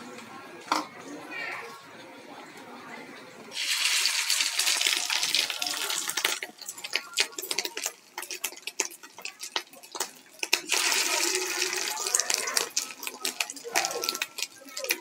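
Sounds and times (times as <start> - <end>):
batter sizzling in hot oil: 3.5 - 15.0
oil crackling and popping: 3.5 - 15.0.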